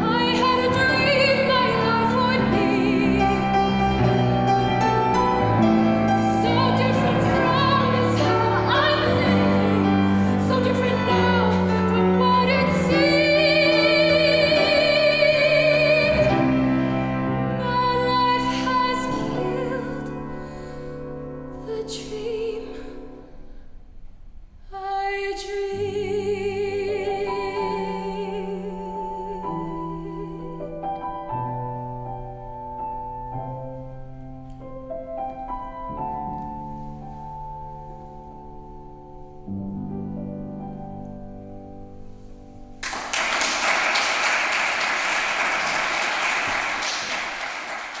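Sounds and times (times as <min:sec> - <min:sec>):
woman singing with vibrato: 0:00.0 - 0:03.8, 0:06.1 - 0:20.2, 0:24.7 - 0:30.6
grand piano: 0:00.0 - 0:48.0
audience applauding: 0:42.8 - 0:48.0.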